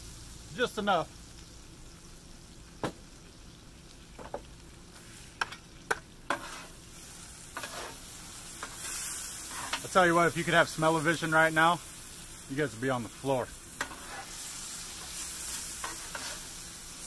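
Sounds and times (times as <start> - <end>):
noodles sizzling on a griddle: 0.0 - 17.0
metal spatulas scraping on griddle: 6.3 - 10.0, 13.7 - 17.0.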